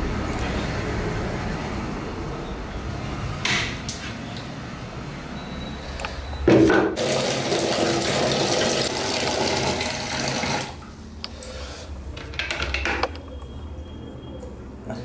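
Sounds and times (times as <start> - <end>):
water running into plastic bucket: 7.0 - 11.0.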